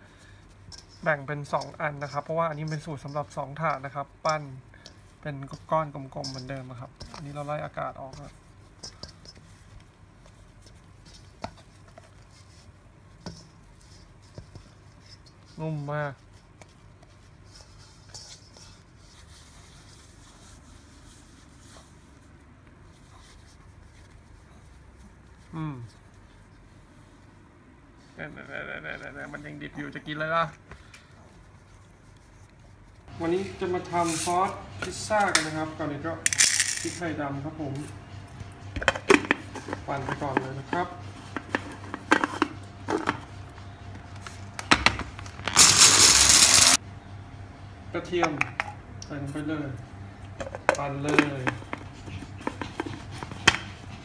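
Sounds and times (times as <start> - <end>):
dough rustling in metal bowl: 0.0 - 27.4, 31.2 - 44.6, 45.3 - 46.8
room noise: 0.0 - 46.8
food chopper motor grinding: 45.5 - 46.8.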